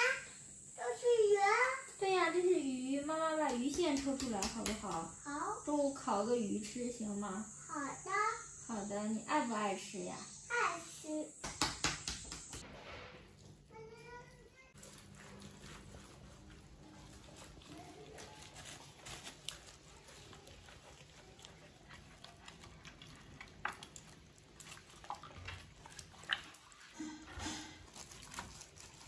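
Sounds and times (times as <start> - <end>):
hands tapping and rustling: 3.4 - 5.1.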